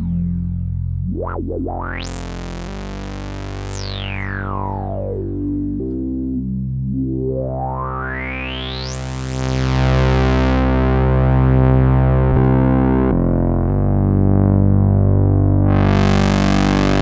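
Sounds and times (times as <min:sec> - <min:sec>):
synthesizer filter sweep: 0:00.0 - 0:17.0.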